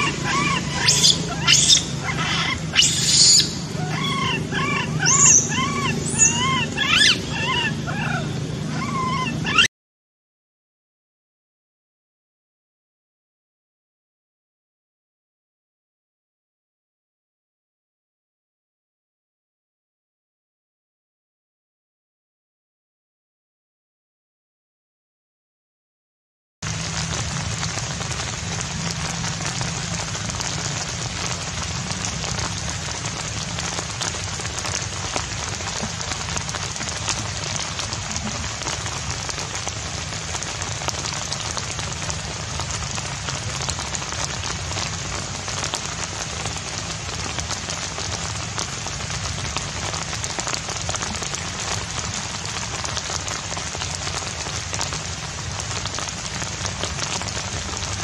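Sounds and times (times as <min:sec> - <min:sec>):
steady rain pattering: 0:00.0 - 0:09.7, 0:26.6 - 0:58.0.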